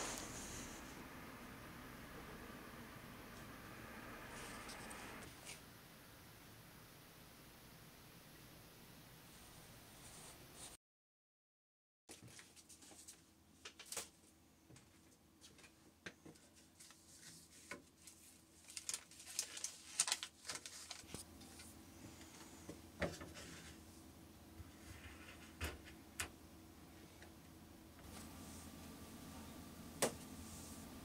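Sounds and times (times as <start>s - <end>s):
faint steady hum: 0.0s - 10.6s, 12.8s - 31.0s.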